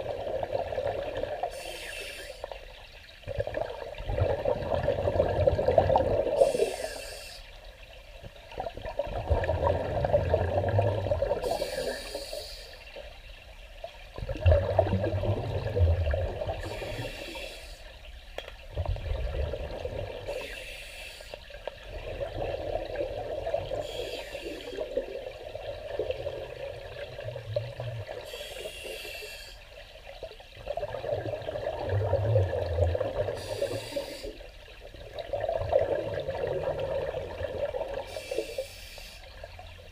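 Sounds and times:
regulator inhale hiss: 1.5s - 2.6s, 6.3s - 7.6s, 11.4s - 12.9s, 16.6s - 18.0s, 20.3s - 21.5s, 23.8s - 24.9s, 28.2s - 29.7s, 33.4s - 34.5s, 38.1s - 39.4s
regulator exhale bubbling: 3.3s - 7.5s, 14.2s - 18.0s, 30.6s - 34.5s.

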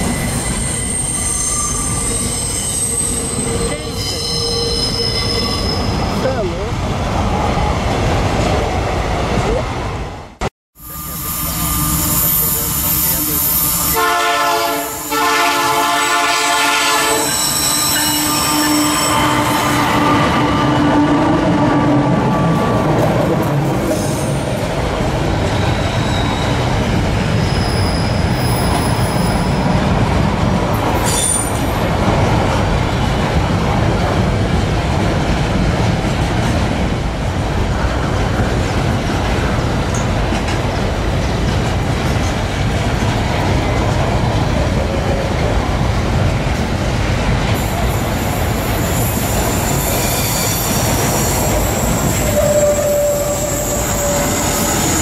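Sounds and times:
high-pitched wheel squeals: 0.0s - 6.2s, 10.8s - 14.0s, 17.1s - 20.5s, 27.4s - 29.6s, 48.6s - 55.0s
freight train wheels rumbling: 0.0s - 55.0s.

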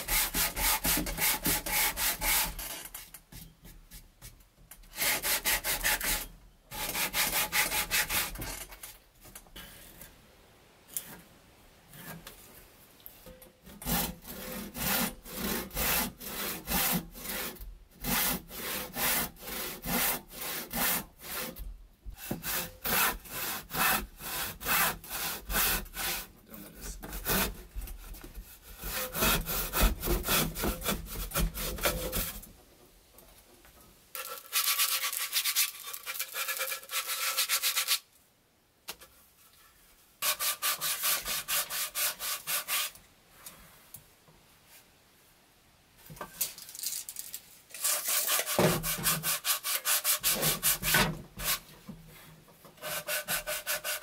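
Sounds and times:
hand saw cutting wood: 0.0s - 3.1s, 4.9s - 9.0s, 13.6s - 32.5s, 34.2s - 38.1s, 40.2s - 43.0s, 47.7s - 51.7s, 52.8s - 54.0s
sandpaper rubbing on wood: 34.2s - 38.0s, 40.2s - 43.0s, 47.8s - 51.6s, 52.8s - 54.0s.

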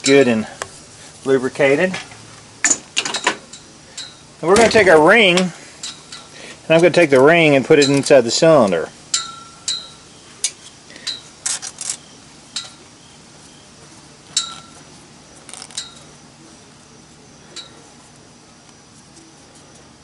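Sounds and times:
piston ring clinking in cylinder: 2.7s - 4.7s, 9.1s - 10.0s, 14.3s - 14.8s, 15.6s - 16.1s.

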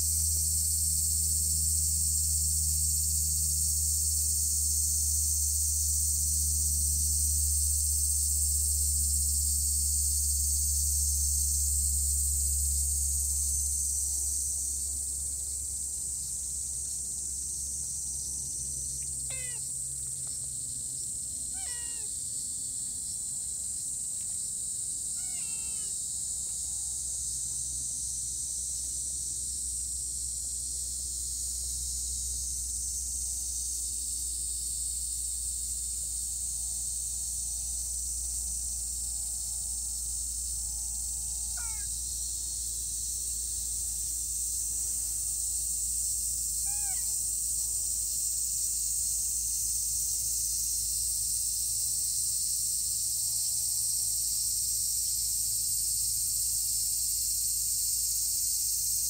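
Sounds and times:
cat meowing: 19.3s - 19.6s, 21.5s - 22.1s, 25.2s - 26.0s, 41.6s - 41.9s, 46.6s - 47.2s.

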